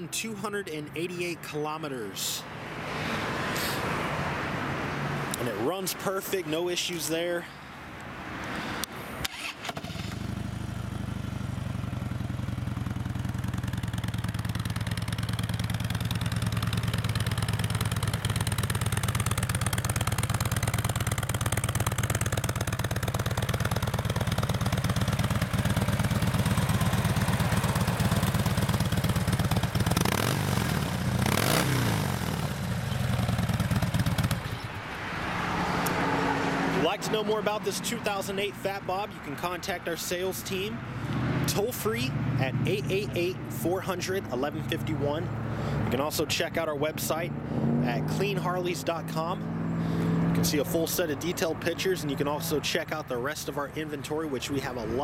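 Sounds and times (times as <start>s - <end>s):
motorcycle engine revving: 9.2s - 38.5s, 47.0s - 51.3s
motorcycle engine idling: 10.0s - 34.9s.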